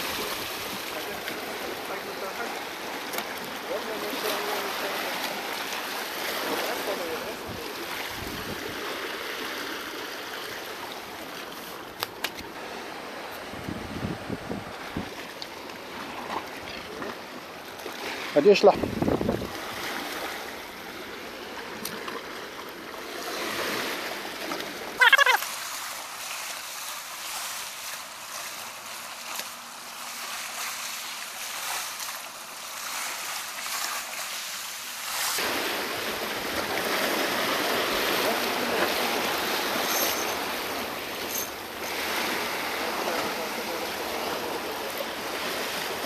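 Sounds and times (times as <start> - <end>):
waves washing against rocks: 0.0 - 46.0
high squeak: 39.8 - 40.4, 41.2 - 41.6.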